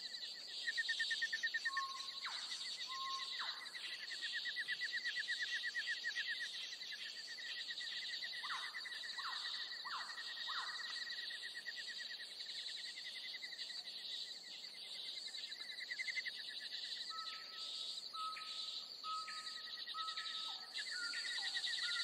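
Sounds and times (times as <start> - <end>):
birds singing trills: 0.0 - 22.0
whistled bird notes: 0.7 - 7.2, 15.6 - 22.0.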